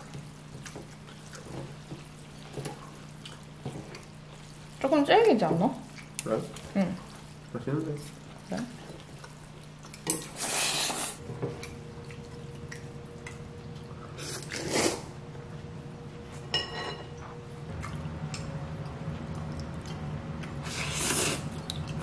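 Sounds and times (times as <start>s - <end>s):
noodles being slurped: 10.2s - 11.2s, 14.2s - 15.1s, 20.5s - 22.0s
low hum: 11.2s - 22.0s.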